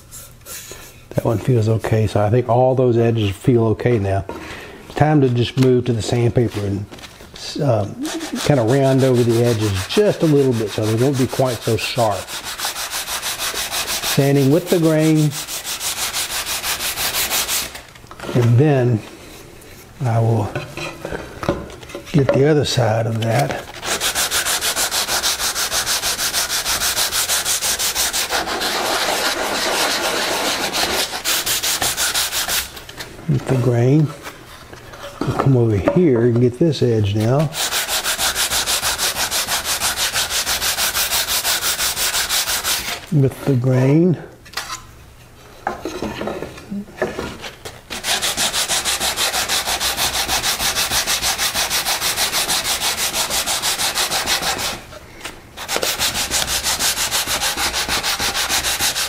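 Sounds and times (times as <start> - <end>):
sandpaper scratching on wood: 7.9 - 17.8, 23.3 - 32.7, 37.1 - 43.0, 47.9 - 54.8, 55.6 - 59.0.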